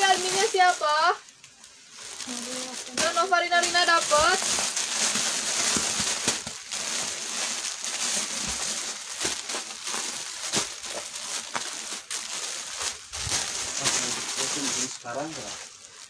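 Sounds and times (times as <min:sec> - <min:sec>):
plastic packaging crinkling: 0:00.0 - 0:16.0.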